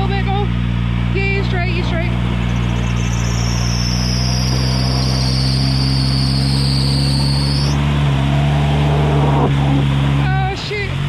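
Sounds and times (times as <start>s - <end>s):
car engine running: 0.0s - 11.0s
high-pitched whine: 1.9s - 10.4s.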